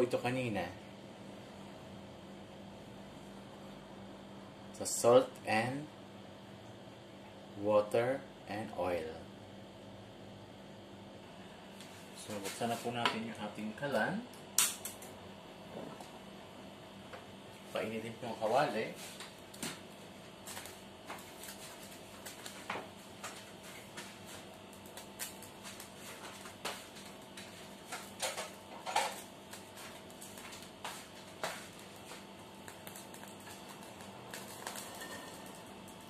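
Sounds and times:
water droplets popping in hot wok: 31.8 - 36.0.

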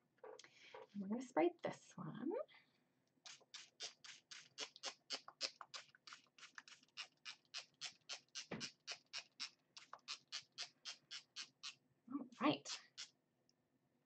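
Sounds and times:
spray bottle spritzing: 3.3 - 11.7.

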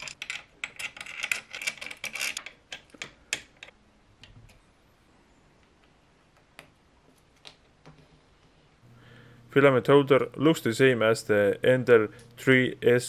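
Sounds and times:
small metal and plastic clicks: 0.0 - 4.6.

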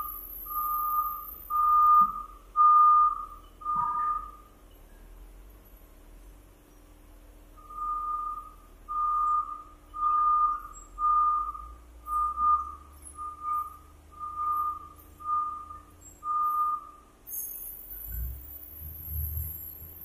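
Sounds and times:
reversing alarm beeping: 0.0 - 4.4, 7.6 - 17.0
low machine rumble: 0.0 - 20.0.

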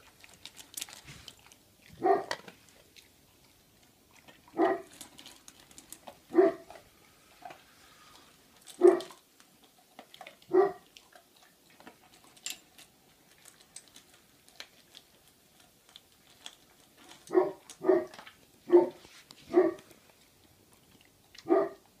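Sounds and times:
kibble clicking on steel bowl: 0.0 - 6.9, 8.6 - 18.5
dog barking: 2.0 - 2.4, 4.6 - 4.9, 6.3 - 6.7, 8.8 - 9.2, 10.5 - 10.9, 17.3 - 19.8, 21.4 - 21.8.

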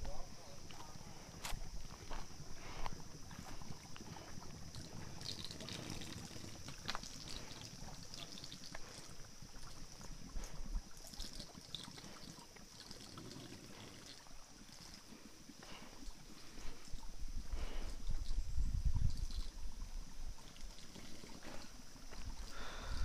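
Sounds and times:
footsteps on loose stones: 0.0 - 4.6
stream trickling over stones: 0.4 - 23.0.

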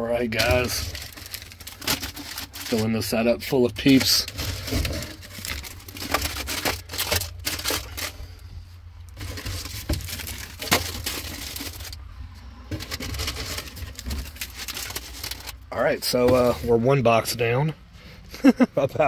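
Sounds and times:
plastic crinkling: 0.3 - 8.3, 9.1 - 12.0, 12.7 - 16.6.

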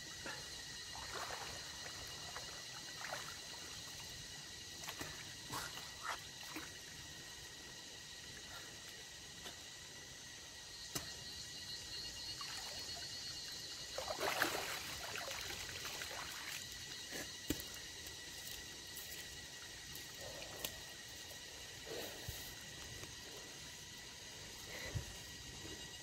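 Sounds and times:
water splashing and trickling: 0.9 - 7.3, 12.3 - 20.3.

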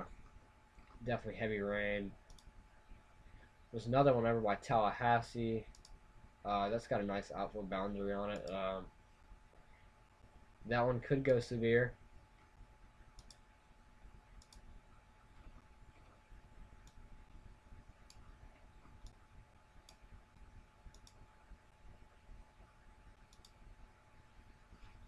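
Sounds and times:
low steady hum: 0.0 - 25.0
faint computer mouse clicks: 2.3 - 2.5, 5.7 - 6.0, 13.2 - 13.4, 14.4 - 14.7, 16.8 - 17.1, 19.8 - 21.2, 23.3 - 23.6.

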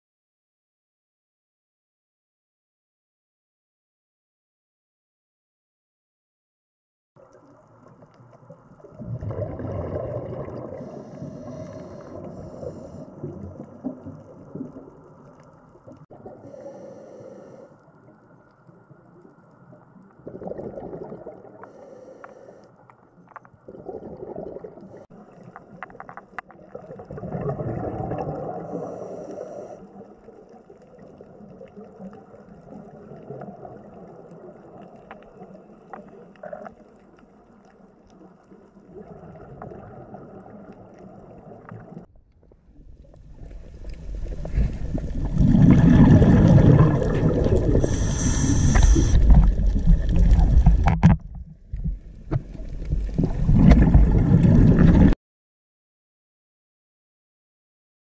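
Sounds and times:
underwater bubbling and gurgling: 7.2 - 55.2
short hiss: 47.8 - 49.4.

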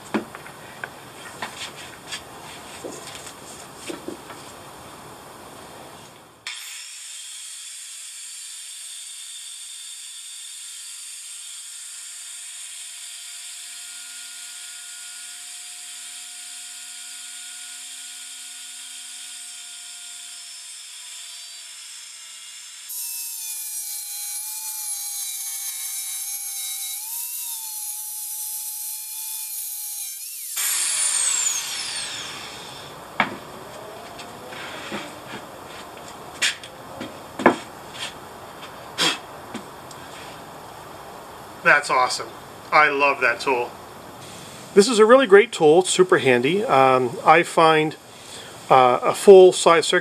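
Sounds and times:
circular saw cutting wood: 6.4 - 36.7.

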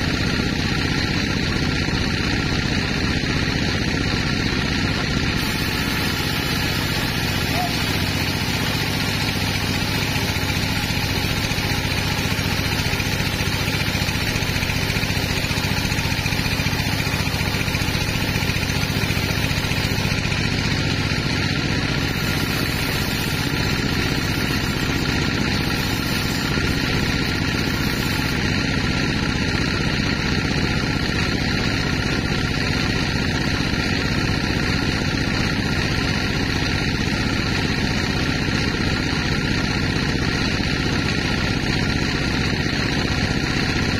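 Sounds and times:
band saw droning: 0.0 - 32.7.

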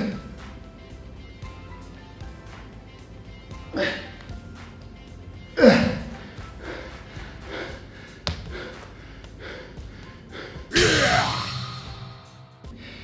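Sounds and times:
background music: 0.0 - 13.0
man straining and exhaling hard: 5.5 - 13.0.

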